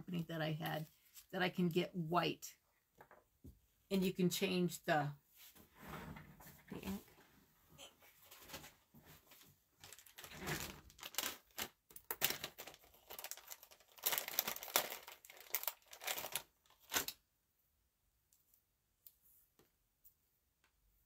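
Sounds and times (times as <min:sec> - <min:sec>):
packaging crinkling and tearing: 0:09.8 - 0:17.2.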